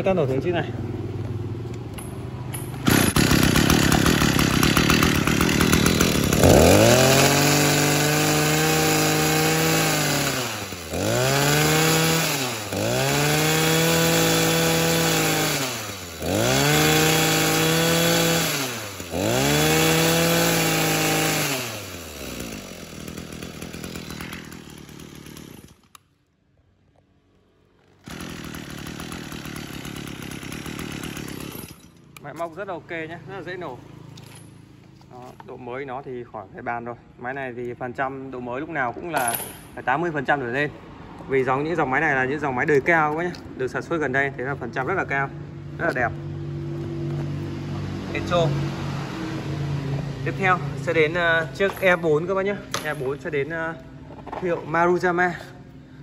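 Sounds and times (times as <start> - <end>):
brush cutter engine revving: 2.6 - 26.1, 27.9 - 34.3, 46.8 - 55.5.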